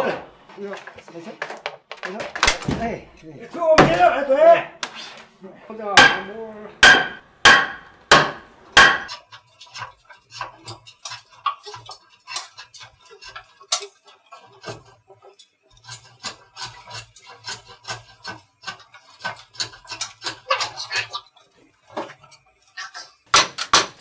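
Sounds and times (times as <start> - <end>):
wooden mallet knocking timber: 3.8 - 4.1, 6.0 - 9.1.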